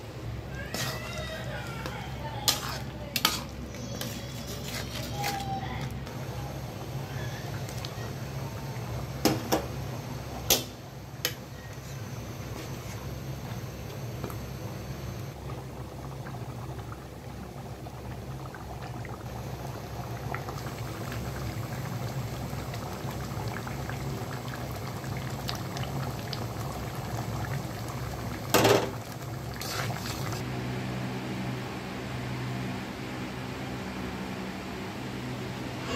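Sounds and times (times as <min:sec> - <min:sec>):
curry bubbling and popping: 0:15.4 - 0:30.4.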